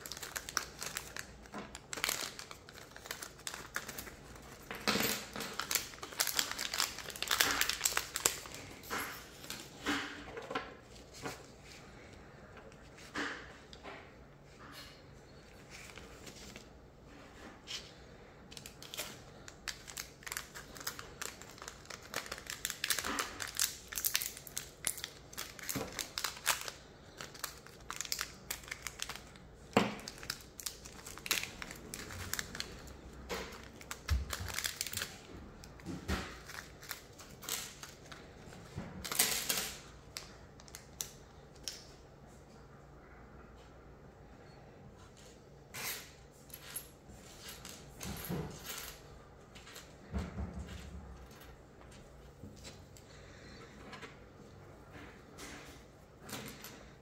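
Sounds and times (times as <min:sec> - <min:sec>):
packaging crinkling and rustling: 0:00.0 - 0:10.0, 0:17.5 - 0:41.9.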